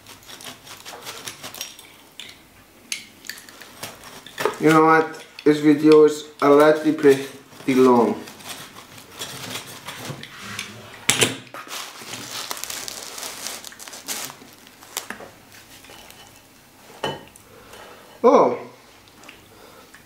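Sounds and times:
knife scraping cardboard: 0.0 - 1.6
knife cutting pizza: 0.0 - 1.7.

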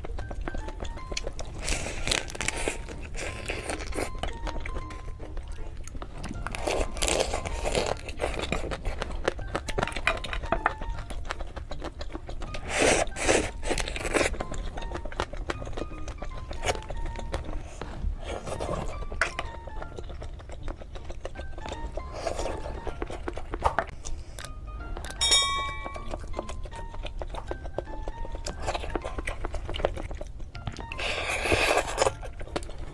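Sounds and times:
crab shell crunching and cracking: 0.0 - 32.9
soft background music: 0.0 - 32.9
wet chewing: 0.0 - 32.9
short chime: 25.2 - 26.3.

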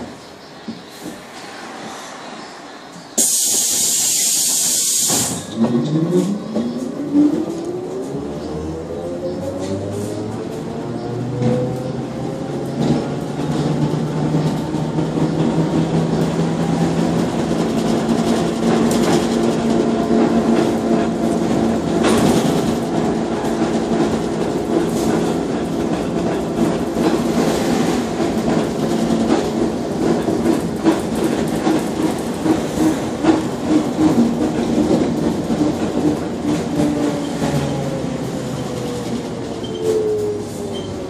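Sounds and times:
bus body rattling and knocking: 12.7 - 27.4, 28.0 - 37.2.

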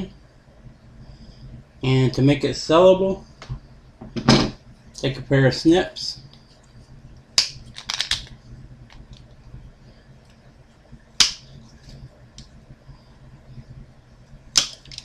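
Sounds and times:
snips snapping plastic: 14.6 - 15.0.

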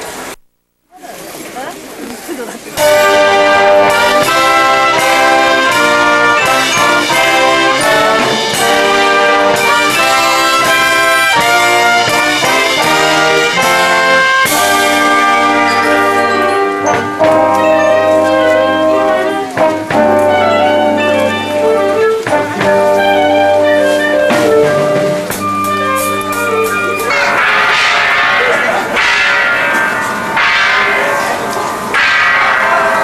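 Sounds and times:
brass band playing chords: 2.8 - 33.0.

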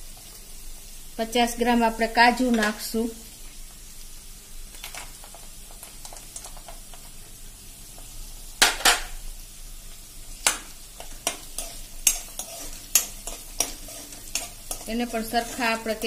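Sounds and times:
oil sizzling in a pan: 0.0 - 16.0
utensil scraping a pan: 11.0 - 16.0.

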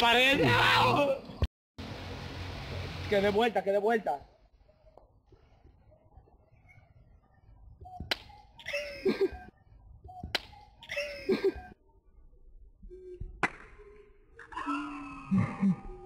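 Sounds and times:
open-hand slaps on a head: 8.1 - 8.3
person crying out: 14.5 - 16.0.

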